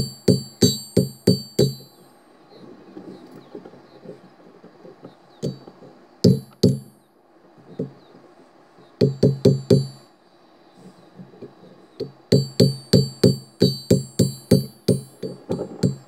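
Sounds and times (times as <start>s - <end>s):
hammer striking steel on anvil: 0.0s - 2.0s, 12.3s - 16.0s.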